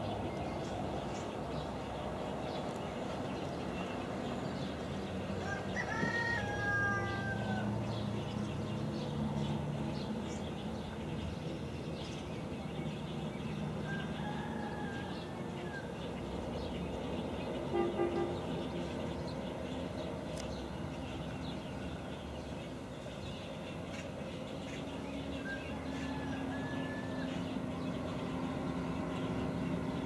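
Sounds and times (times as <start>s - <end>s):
rooster crowing: 5.4s - 7.8s, 13.8s - 15.8s, 25.4s - 27.6s.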